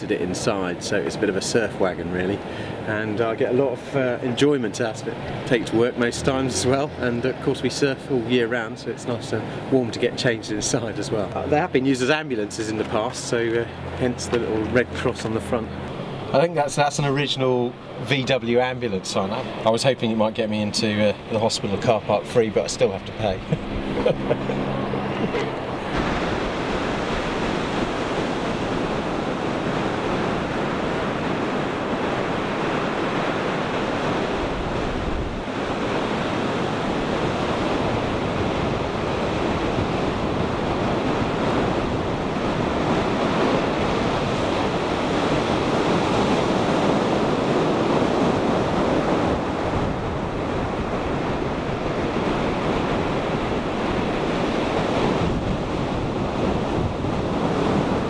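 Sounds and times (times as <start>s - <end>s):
ocean waves breaking on beach: 0.0s - 58.0s
wind buffeting microphone: 21.2s - 58.0s.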